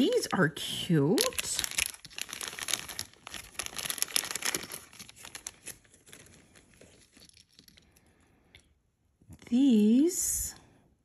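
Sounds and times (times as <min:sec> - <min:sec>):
packaging crinkling: 0:01.0 - 0:08.0.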